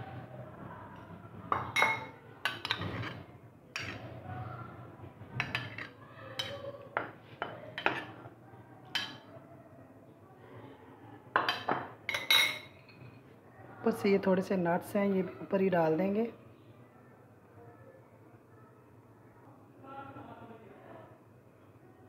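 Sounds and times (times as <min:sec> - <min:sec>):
spoon clinking on ceramic plate: 0:01.5 - 0:03.2, 0:05.4 - 0:08.2, 0:11.4 - 0:13.2.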